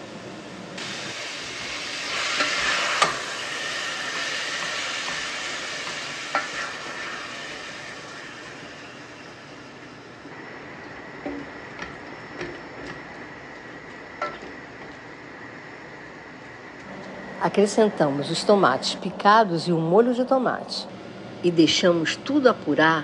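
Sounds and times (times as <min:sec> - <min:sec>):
meat sizzling in a pot: 0:00.8 - 0:12.9.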